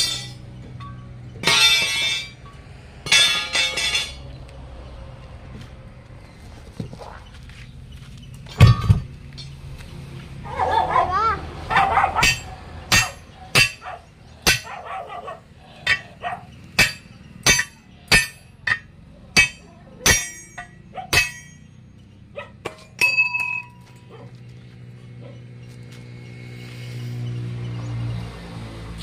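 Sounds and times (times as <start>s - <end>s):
sledgehammer striking steel: 0.0s - 4.3s, 12.2s - 13.8s, 14.4s - 14.7s, 15.8s - 16.2s, 16.8s - 21.8s, 22.6s - 24.0s.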